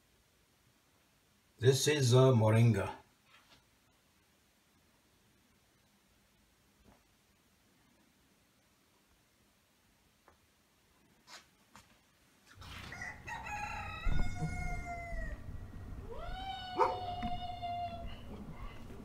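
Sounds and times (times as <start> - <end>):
rooster crowing: 12.6 - 19.0.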